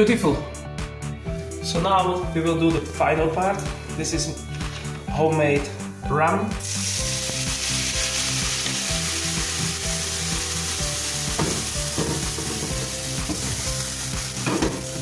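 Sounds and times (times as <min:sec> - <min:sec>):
liquid sizzling in a hot pan: 0:06.6 - 0:15.0
frying pan knocks: 0:11.3 - 0:13.6, 0:14.4 - 0:14.9.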